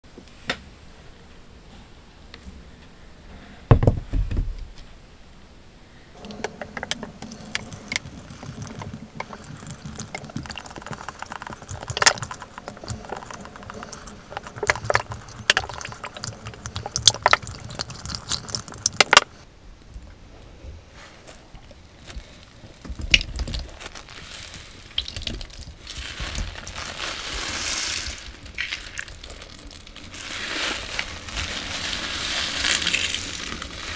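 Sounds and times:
heavy thump: 3.7 - 4.8
liquid running off: 6.2 - 19.4, 22.9 - 33.9
sponges squelching with foam: 6.2 - 19.4, 21.1 - 33.9.

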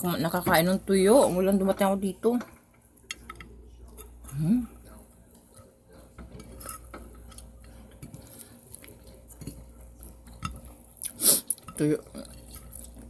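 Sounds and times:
dishes and cutlery clicking: 1.5 - 4.2, 5.4 - 10.8.

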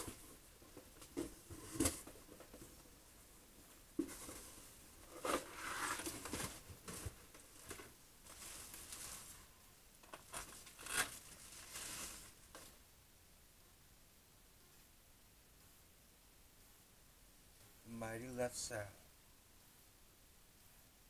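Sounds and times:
plastic and paper rustling: 4.0 - 12.7.

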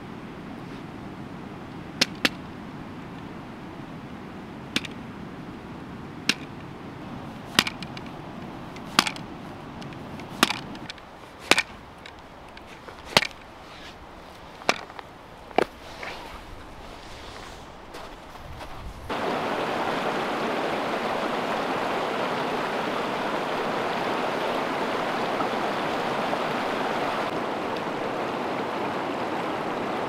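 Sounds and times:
hatchet chopping on wooden stump: 7.5 - 8.0, 10.3 - 10.7, 11.4 - 11.7, 13.0 - 13.4.

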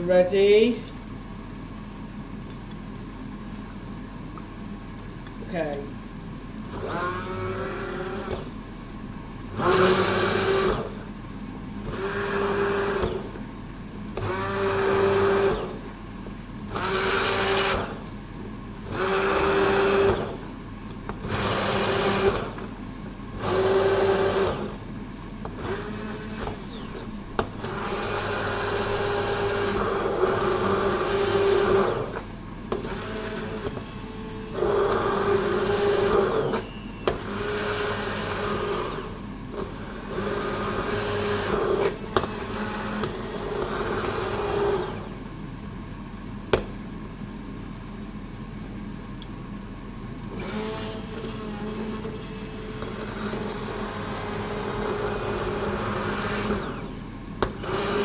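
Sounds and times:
immersion blender whining: 6.7 - 8.6, 9.5 - 11.1, 11.8 - 13.4, 14.2 - 16.0, 16.7 - 18.1, 18.8 - 20.5, 21.1 - 22.7, 23.4 - 24.8, 25.5 - 45.2, 50.3 - 58.0.

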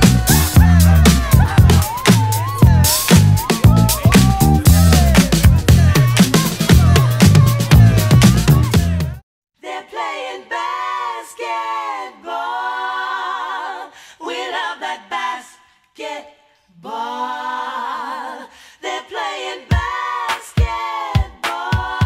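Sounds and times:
deep bass beats: 0.0 - 9.2
voices singing a cappella: 0.0 - 22.0.

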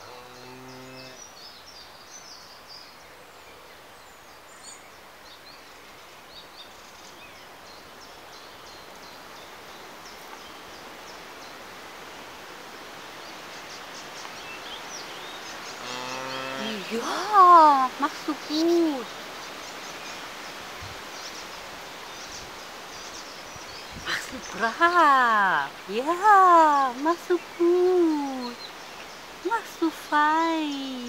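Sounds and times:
steady background hiss: 0.0 - 31.0.

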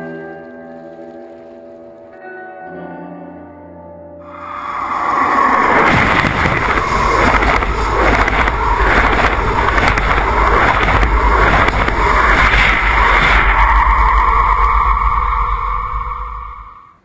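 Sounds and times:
loud rushing and rumbling: 4.3 - 17.0.

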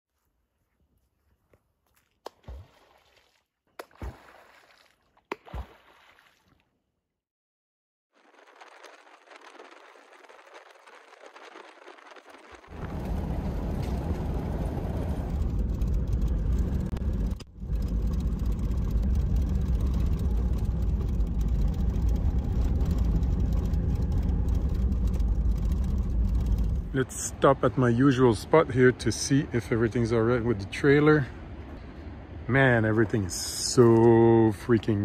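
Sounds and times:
tyres on gravel and engine rumble: 8.2 - 35.0.

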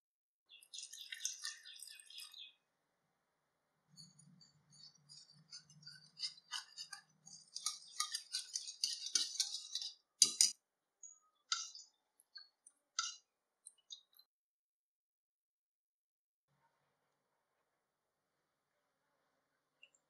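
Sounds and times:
whisk knocking bowl: 4.0 - 10.6, 11.5 - 11.8
whisk ticking in plastic bowl: 4.0 - 10.6, 11.4 - 13.2.

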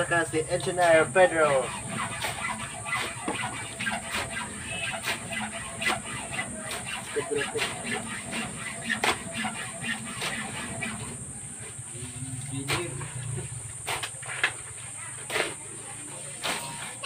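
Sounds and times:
shovel scraping through cement mix: 0.6 - 11.2.

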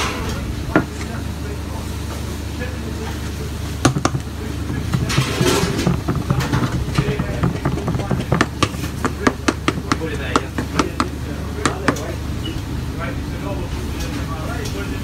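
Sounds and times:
low kitchen hum: 0.0 - 15.0
spoon scraping pizza pan: 3.9 - 12.0.

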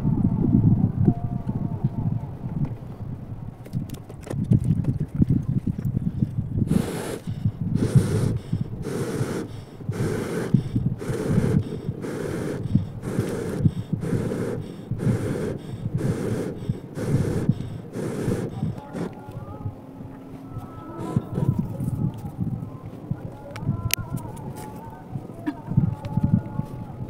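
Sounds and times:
rhythmic puffs of air: 6.6 - 27.0.

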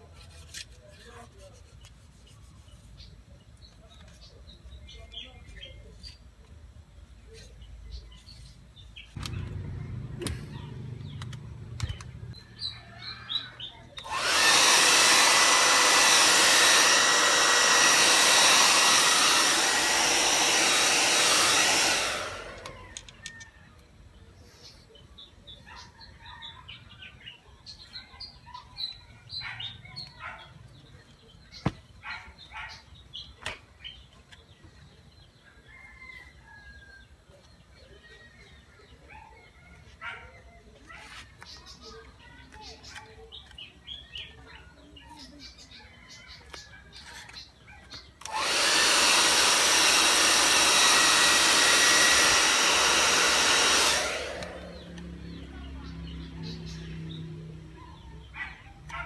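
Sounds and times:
hair dryer running: 14.0 - 23.2, 48.2 - 56.6.

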